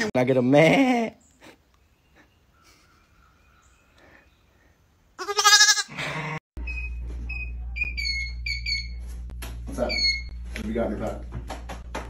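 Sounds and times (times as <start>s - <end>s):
baby goat bleating: 5.2s - 5.9s.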